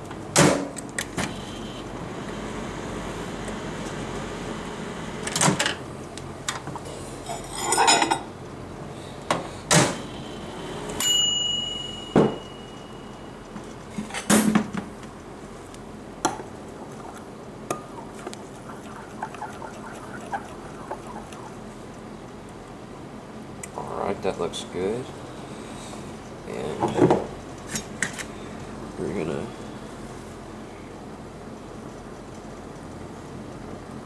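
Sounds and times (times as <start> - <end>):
microwave ding: 11.0 - 13.4
microwave and glass cup clattering: 11.2 - 12.7.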